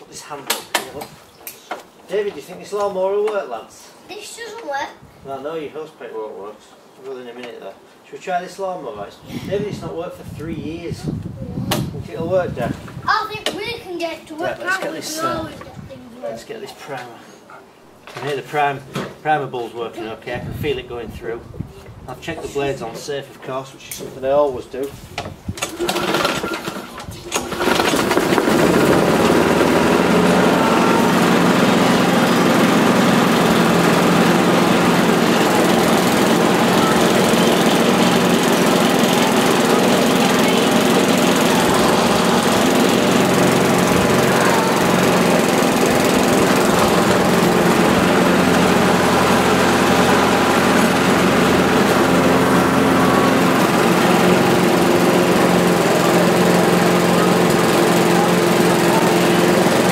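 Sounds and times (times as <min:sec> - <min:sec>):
lawnmower engine starting and running: 0:25.6 - 0:59.9.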